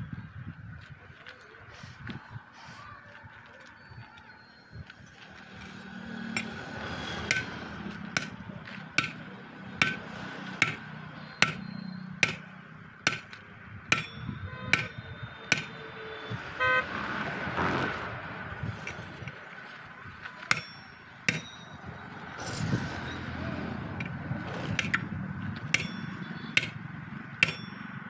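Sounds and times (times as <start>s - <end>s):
metal blows on wheel rim: 13.9s - 16.0s
vehicle horn toot: 14.3s - 17.0s.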